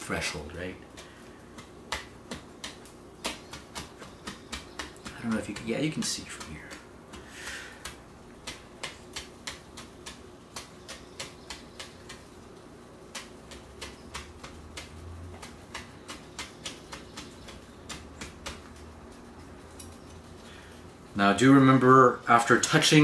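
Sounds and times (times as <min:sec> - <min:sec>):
knife chopping on plastic board: 0:00.9 - 0:12.3, 0:13.1 - 0:18.9.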